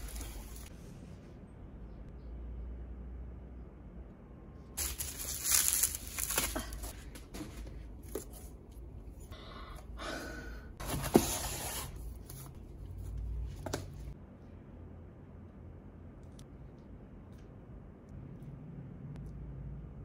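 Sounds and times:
packaging rustling and tearing: 0:04.8 - 0:07.0.

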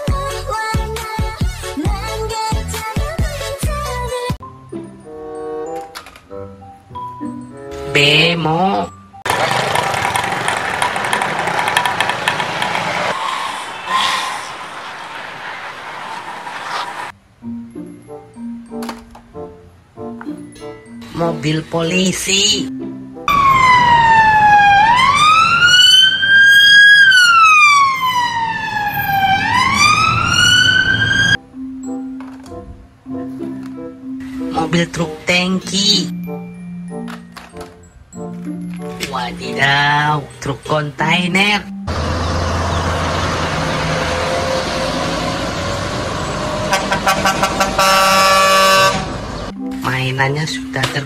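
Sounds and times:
heavy trucks running: 0:09.2 - 0:17.2, 0:22.8 - 0:31.4, 0:41.8 - 0:49.6
police siren wailing: 0:09.3 - 0:17.1, 0:23.3 - 0:31.4, 0:41.9 - 0:49.2
long truck horn blast: 0:41.9 - 0:49.4
truck horn toots: 0:45.7 - 0:49.2.

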